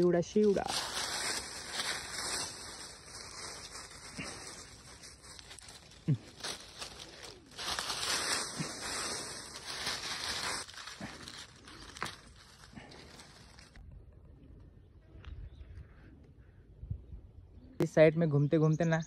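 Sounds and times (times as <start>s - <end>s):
dry leaves crunching underfoot: 0.0s - 13.8s
twigs brushing: 0.0s - 13.8s.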